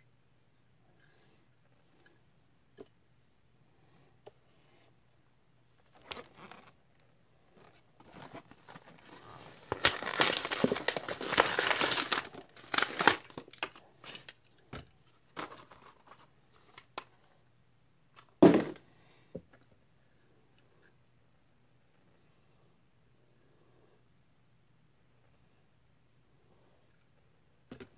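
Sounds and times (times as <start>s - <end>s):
plastic blister pack crinkling: 7.6s - 14.4s
cardboard tearing: 8.1s - 13.6s.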